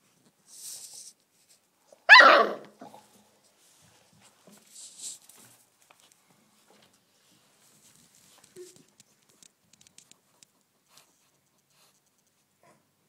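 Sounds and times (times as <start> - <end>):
puppy barking: 2.1 - 3.0
faint rustling: 2.8 - 12.7.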